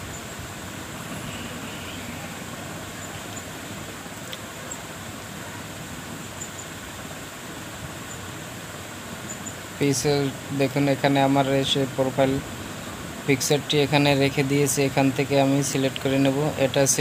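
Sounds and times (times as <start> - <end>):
room and microphone hiss: 0.0 - 17.0
faint click: 4.2 - 4.5.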